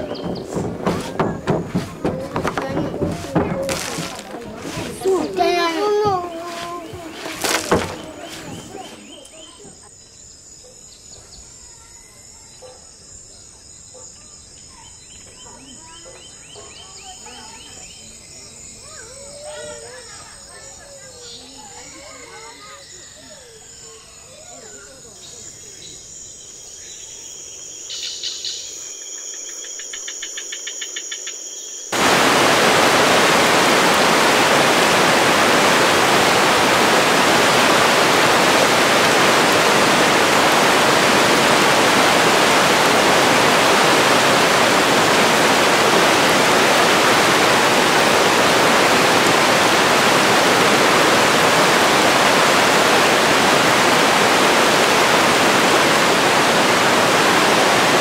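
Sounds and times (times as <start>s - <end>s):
stream flowing over rocks: 0.0s - 9.2s, 32.0s - 58.0s
insects trilling: 0.0s - 58.0s.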